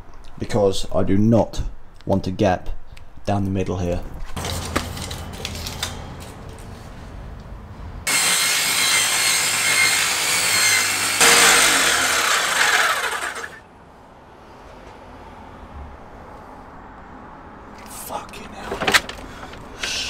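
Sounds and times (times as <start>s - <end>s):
power saw cutting plywood: 8.1s - 13.6s.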